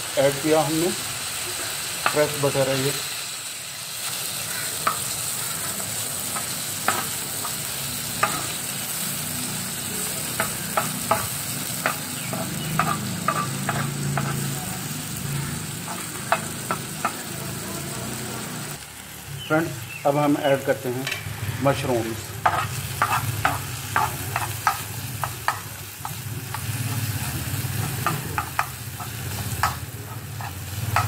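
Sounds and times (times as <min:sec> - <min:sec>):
onions and tomatoes sizzling in pan: 0:00.0 - 0:31.0
spoon knocking and scraping pan: 0:04.8 - 0:08.6, 0:10.3 - 0:14.5, 0:15.8 - 0:17.2, 0:22.4 - 0:31.0.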